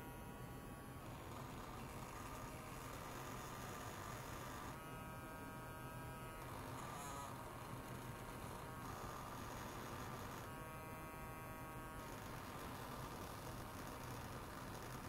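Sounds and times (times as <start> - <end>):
electric toothbrush buzzing: 0.0 - 15.0.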